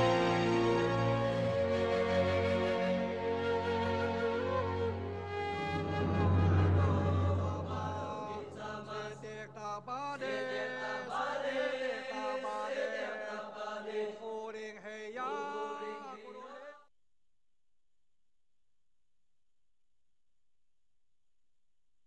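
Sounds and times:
trailer music: 0:00.0 - 0:09.9
deep drone: 0:02.9 - 0:09.6.

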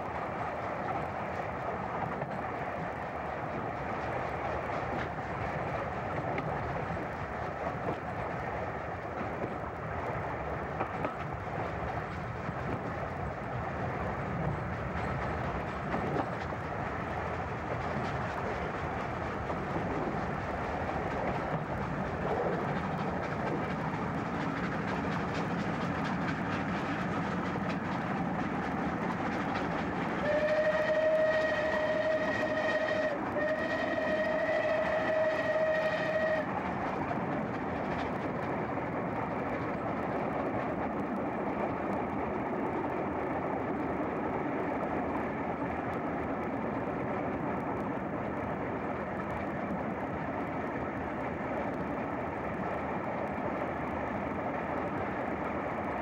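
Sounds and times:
steam train rushing on rails: 0:00.0 - 0:56.0
steam whistle blasts: 0:30.2 - 0:36.5.

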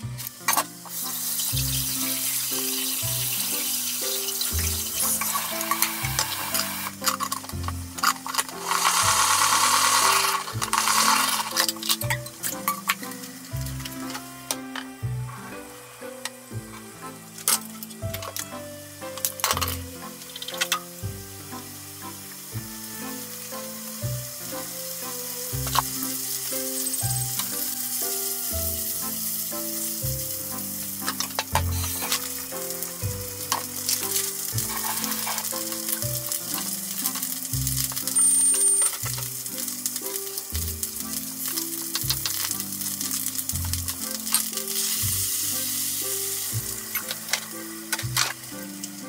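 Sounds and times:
food sizzling in a frying pan: 0:00.0 - 0:49.0.

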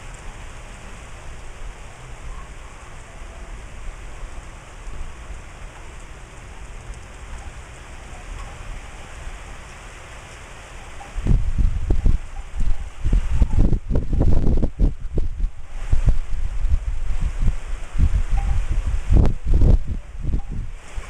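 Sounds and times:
rain falling: 0:00.0 - 0:21.0
wind buffeting microphone: 0:10.8 - 0:21.0.

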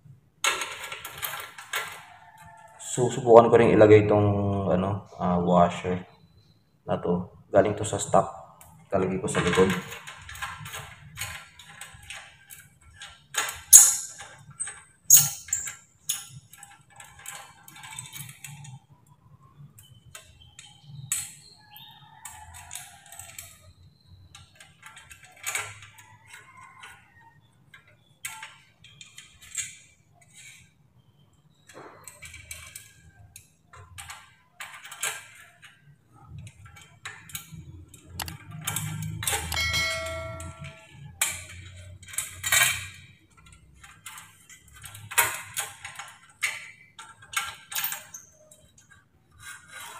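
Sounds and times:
light metallic clinks and clicks: 0:13.7 - 0:16.8, 0:37.9 - 0:45.2.

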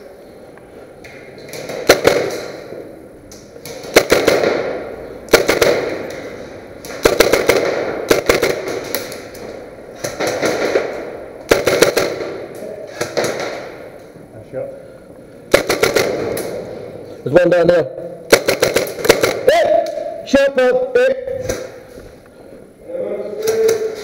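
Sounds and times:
airsoft guns firing: 0:01.4 - 0:02.9, 0:03.5 - 0:14.0, 0:15.5 - 0:16.6, 0:18.3 - 0:20.1.

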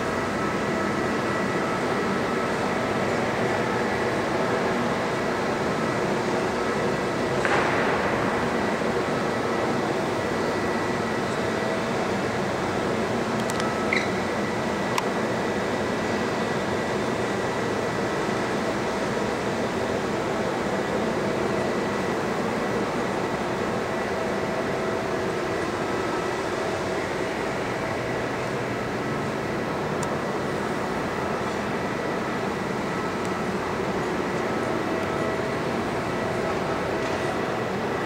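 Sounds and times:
ventilation hum: 0:00.0 - 0:38.0.

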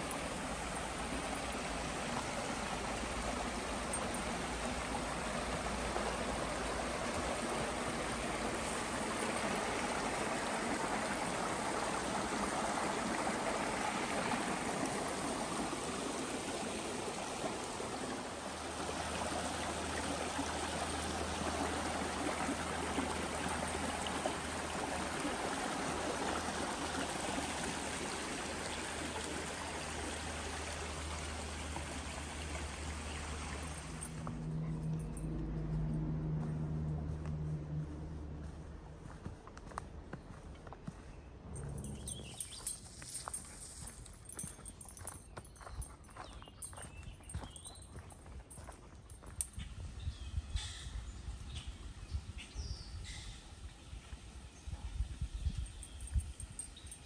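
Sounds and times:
brook running over stones: 0:00.0 - 0:34.4, 0:41.8 - 0:49.9.

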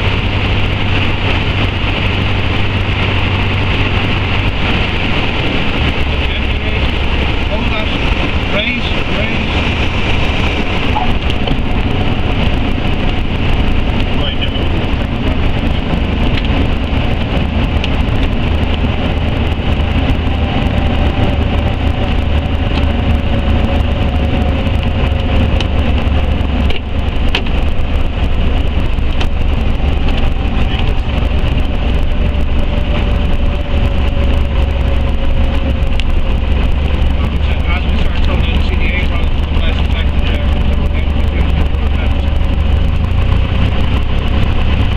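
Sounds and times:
light aircraft engine and propeller: 0:00.0 - 0:44.9.

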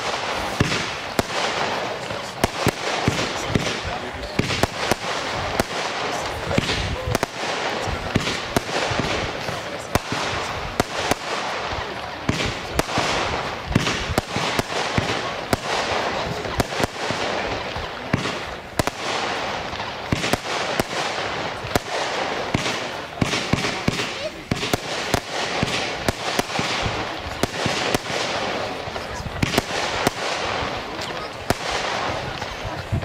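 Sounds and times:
firework bangs: 0:00.0 - 0:33.0
hiss and crackle of fireworks: 0:00.0 - 0:33.0.

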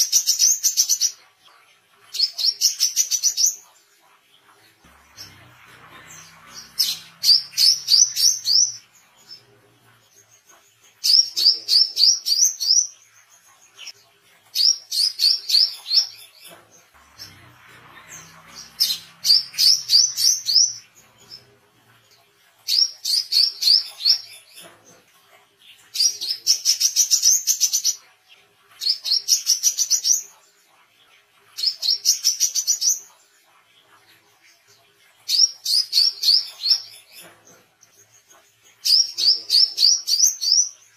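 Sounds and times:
sunbird singing: 0:04.8 - 0:12.9, 0:14.6 - 0:21.6.

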